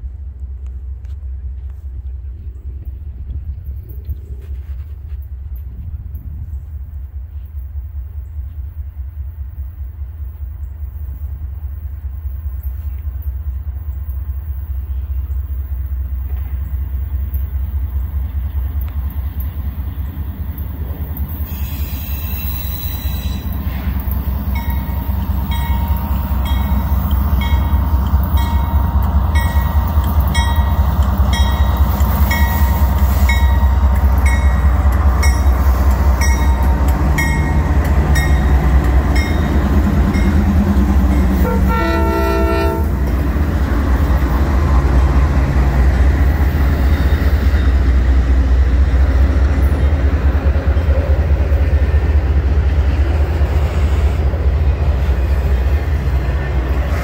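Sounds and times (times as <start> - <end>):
diesel locomotive engine rumble: 0.0 - 57.0
train bell ringing: 18.7 - 42.9
multi-tone train horn blast: 24.9 - 43.3.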